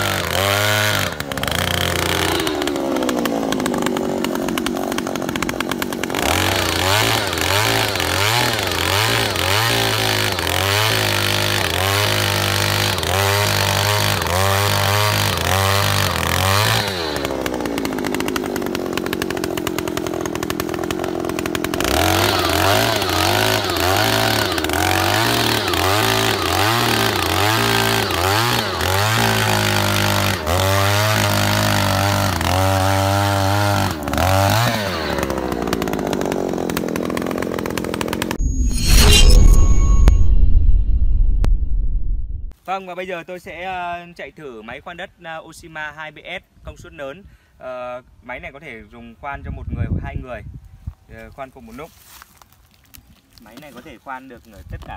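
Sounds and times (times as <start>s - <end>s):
earth auger engine: 0.0s - 39.3s
auger drilling into sandy soil: 0.0s - 40.1s.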